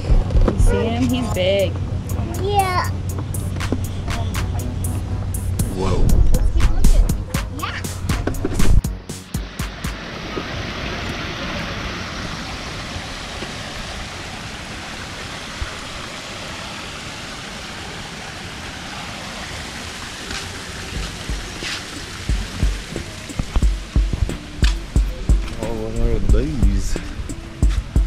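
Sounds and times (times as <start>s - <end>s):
waterfall splashing over rocks: 9.4s - 28.0s.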